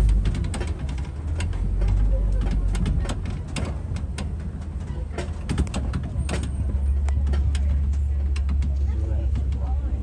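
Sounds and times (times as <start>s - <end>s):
truck engine rumble: 0.0s - 10.0s
vehicle rattling clicks and knocks: 0.0s - 10.0s.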